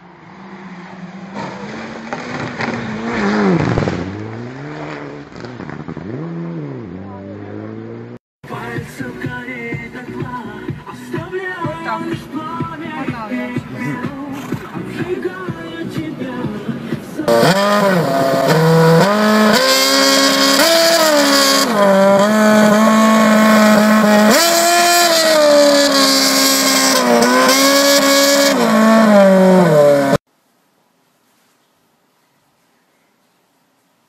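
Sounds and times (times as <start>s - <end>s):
racing car engine revving: 0.0s - 8.2s, 16.8s - 30.2s.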